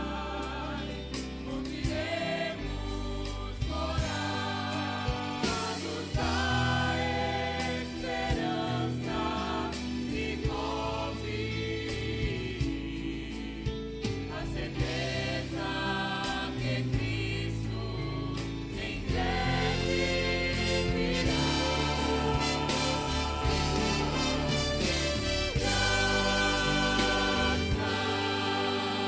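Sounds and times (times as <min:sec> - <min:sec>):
group singing gospel song: 0:00.0 - 0:29.0
instrumental accompaniment: 0:18.4 - 0:29.0.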